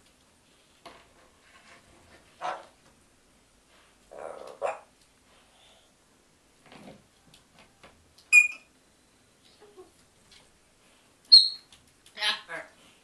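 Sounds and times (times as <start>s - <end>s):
parrot whistling: 8.3s - 8.7s, 11.3s - 11.7s.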